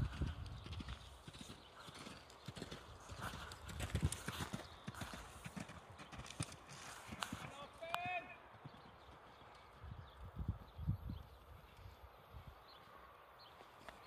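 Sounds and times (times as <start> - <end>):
horse hoofbeats on sand: 0.0 - 9.8.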